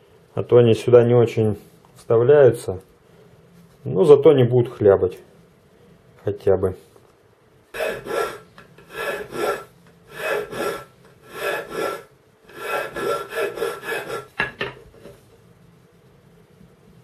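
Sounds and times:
hand file scraping metal: 7.7 - 14.5.

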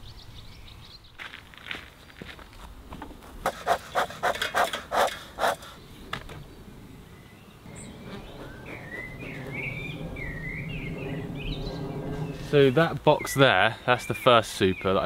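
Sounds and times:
bee smoker bellows puffing: 3.4 - 5.8, 7.7 - 13.2
birds twittering: 3.5 - 15.0
honeybees buzzing: 6.5 - 13.2.

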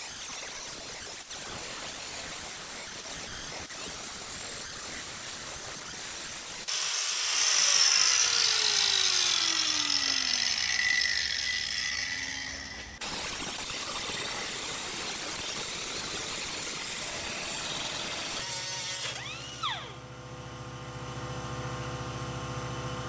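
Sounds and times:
angle grinder grinding metal: 4.3 - 20.0.

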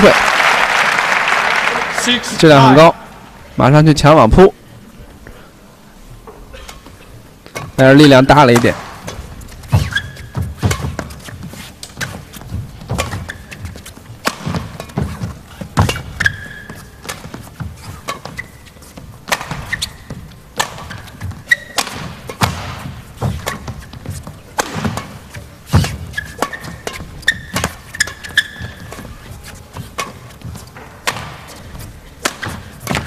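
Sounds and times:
shoes squeaking on court floor: 6.4 - 33.0
racket striking shuttlecock: 8.5 - 33.0
feet thudding on court: 8.6 - 33.0.

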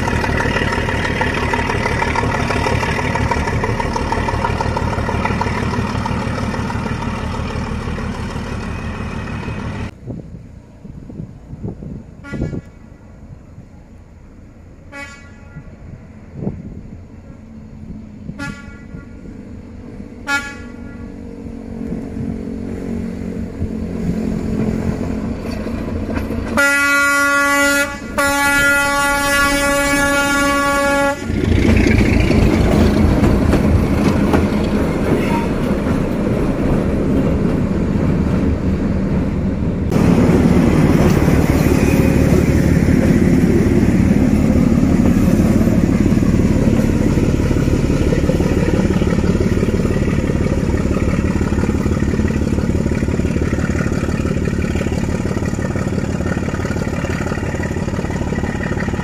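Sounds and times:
locomotive engine running: 0.0 - 10.0, 15.6 - 59.0
locomotive horn blast: 12.2 - 12.8, 14.9 - 15.8, 18.3 - 19.3, 20.2 - 21.3, 26.5 - 31.8, 35.1 - 35.8
train wheels clattering: 24.4 - 26.7, 31.3 - 59.0.

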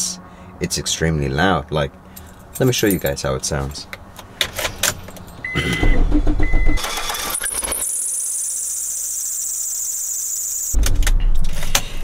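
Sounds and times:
car engine cranking and running: 4.8 - 8.2
short beeps: 5.4 - 7.5
high-pitched belt screech: 6.8 - 10.8.

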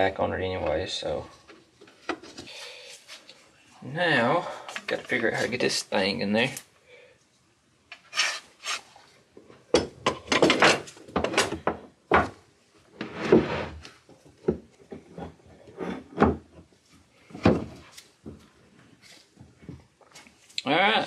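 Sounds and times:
scraping slide: 13.0 - 13.9.

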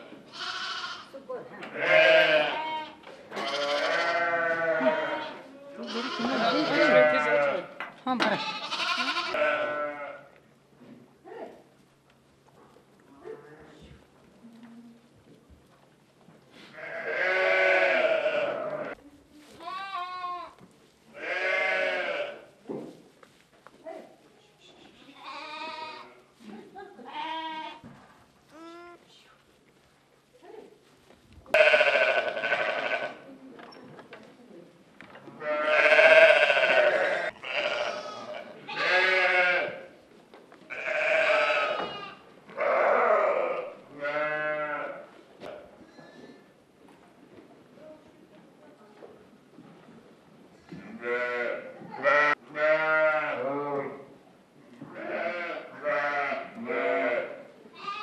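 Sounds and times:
sheep bleating: 0.0 - 1.1, 1.8 - 10.3, 16.8 - 19.0, 21.2 - 22.4, 25.2 - 26.2, 27.1 - 27.8, 31.5 - 33.2, 35.4 - 39.8, 40.7 - 45.0, 51.0 - 54.0, 55.0 - 58.0.

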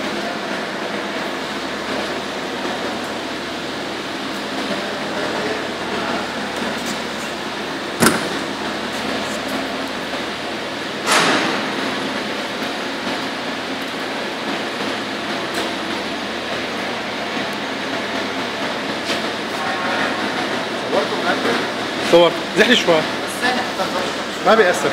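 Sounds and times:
factory machinery running: 0.0 - 24.9
sharp metallic clank: 8.0 - 8.5.

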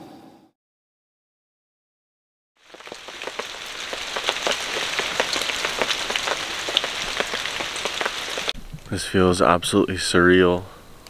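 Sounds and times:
raindrops tapping sharply: 2.6 - 8.6
steady rain falling: 2.6 - 9.0.

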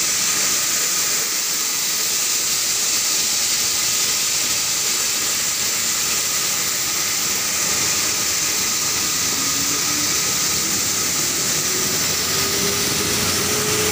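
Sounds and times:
mill machinery rushing: 0.0 - 13.9
faint rising whine: 6.7 - 13.9.

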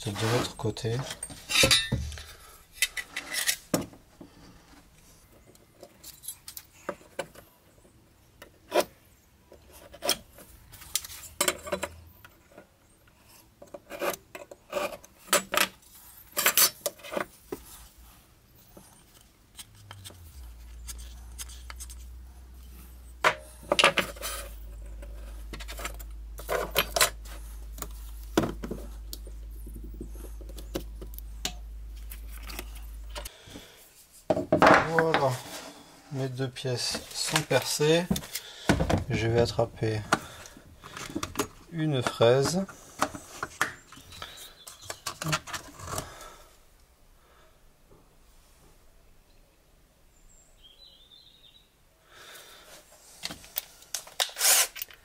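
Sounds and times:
tools clicking and clattering: 1.0 - 3.8
steady low hum: 19.7 - 34.0.

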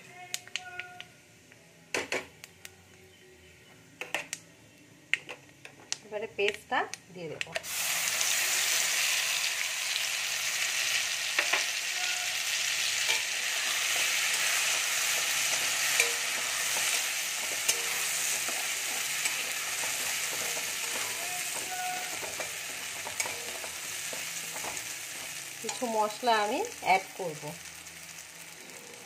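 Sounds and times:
paste sizzling in hot oil: 7.6 - 29.0
spatula stirring: 13.1 - 25.8.

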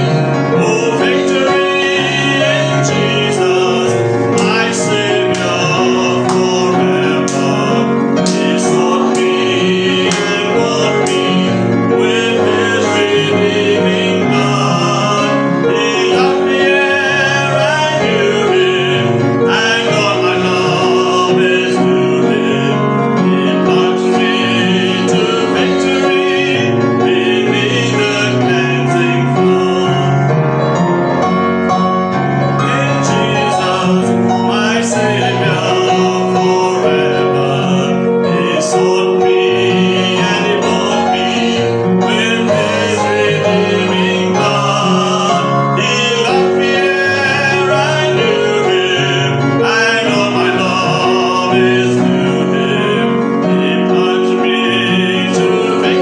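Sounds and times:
choir singing a hymn: 0.0 - 56.0
keyboard accompaniment: 0.0 - 56.0
hand claps: 4.4 - 4.7, 5.3 - 6.6, 7.2 - 9.4, 10.1 - 11.4.

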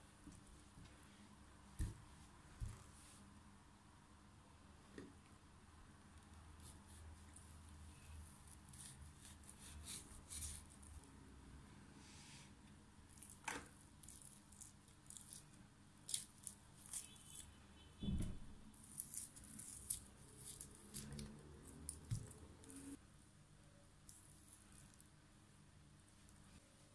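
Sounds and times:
wet squishing and tearing of fish: 13.1 - 17.6.

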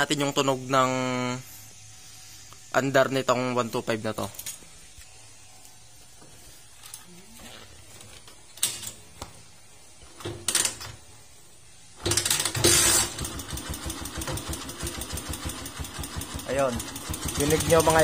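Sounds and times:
motorcycle engine starting and idling: 12.0 - 18.0.

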